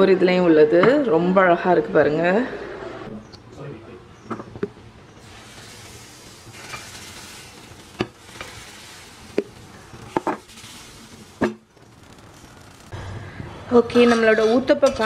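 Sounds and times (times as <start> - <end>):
batter sizzling in hot pan: 5.2 - 12.9.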